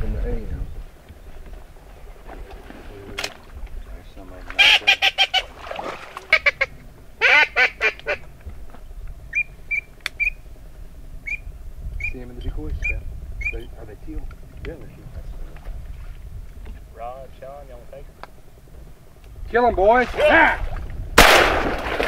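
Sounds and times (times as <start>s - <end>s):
duck call quacking: 4.6s - 5.5s, 6.3s - 8.2s.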